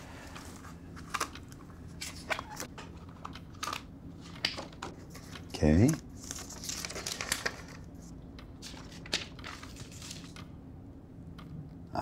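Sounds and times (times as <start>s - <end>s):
notepad pages flipping: 6.1s - 10.5s.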